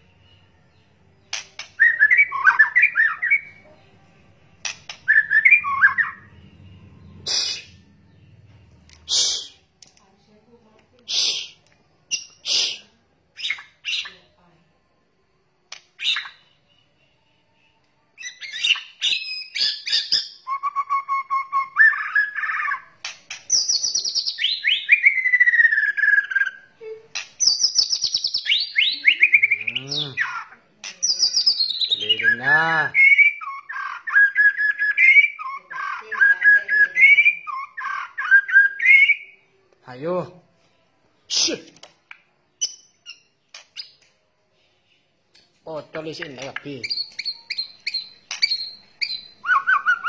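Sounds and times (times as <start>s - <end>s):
bird singing whistles: 0.0s - 3.6s, 4.6s - 8.2s, 16.0s - 26.7s, 27.4s - 39.5s, 46.8s - 50.0s
harsh low bird calls: 7.0s - 8.4s.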